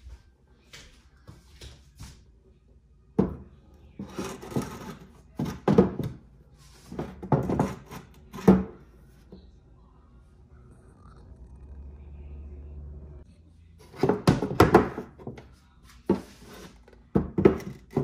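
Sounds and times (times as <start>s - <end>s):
objects knocking and thudding: 3.2s - 8.9s, 13.9s - 18.0s.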